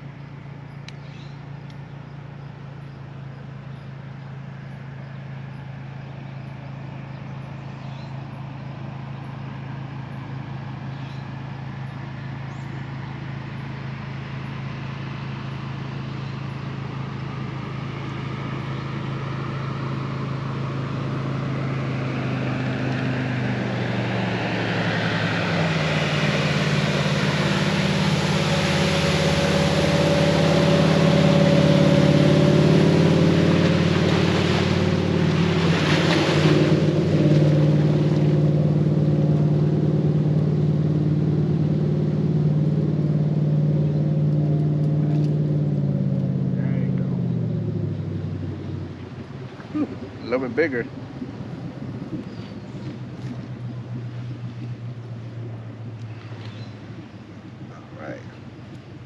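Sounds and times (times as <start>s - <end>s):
motorboat engine: 0.0s - 59.0s
water and wind rushing: 4.0s - 59.0s.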